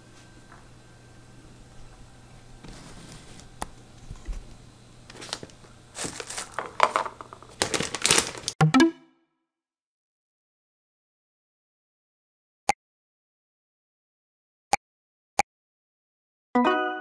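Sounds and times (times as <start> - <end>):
rustling and crinkling handling noise: 2.6 - 8.6.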